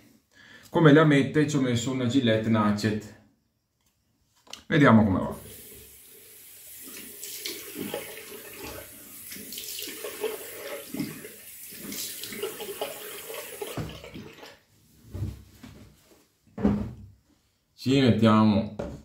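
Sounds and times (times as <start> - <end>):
tap water running into sink: 5.4 - 14.6.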